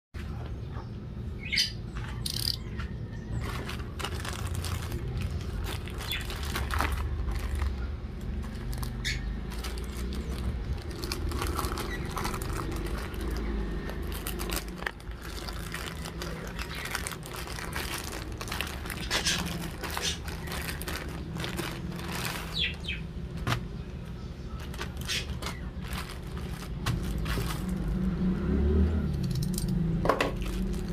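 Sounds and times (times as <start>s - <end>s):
plastic bag crinkling: 3.4s - 23.6s, 24.6s - 28.1s, 30.3s - 30.9s
plastic tearing: 3.4s - 23.6s, 24.6s - 28.1s, 30.3s - 30.9s.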